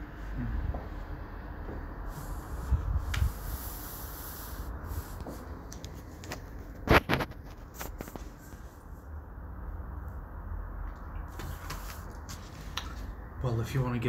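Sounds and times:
camera handling rubbing and rustling: 0:05.7 - 0:08.6.

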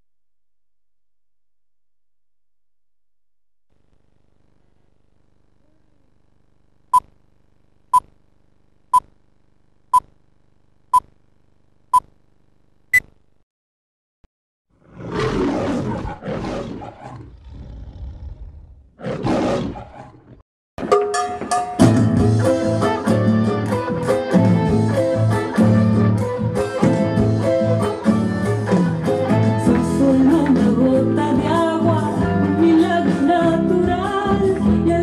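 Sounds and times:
lion roaring: 0:14.8 - 0:20.4.

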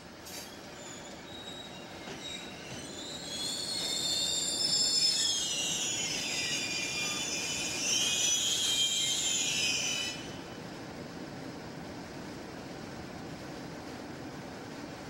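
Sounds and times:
train wheels squealing on rails: 0:00.0 - 0:10.7.

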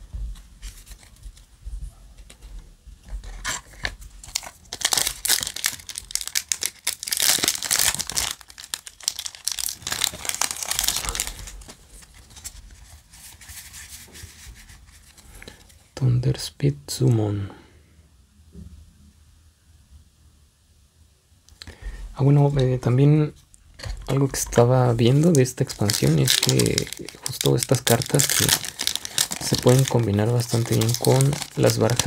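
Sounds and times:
foil wrapper tearing and crinkling: 0:03.6 - 0:12.8, 0:24.9 - 0:32.0.

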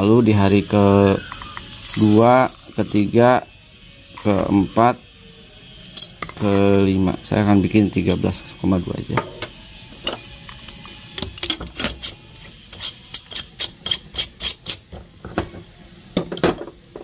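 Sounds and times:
coffee beans and jars clinking: 0:00.8 - 0:03.4, 0:04.1 - 0:04.7, 0:05.8 - 0:07.0, 0:09.1 - 0:14.8.

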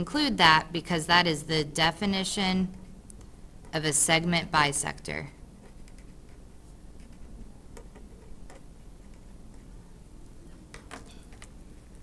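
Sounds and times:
faint low hum: 0:00.0 - 0:12.0
marker scratching on paper: 0:05.6 - 0:09.8.

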